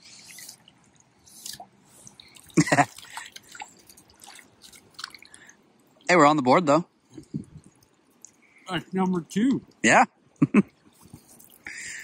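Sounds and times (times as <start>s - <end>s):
water dripping and splashing: 0.0s - 6.2s, 7.6s - 8.6s, 10.8s - 11.8s.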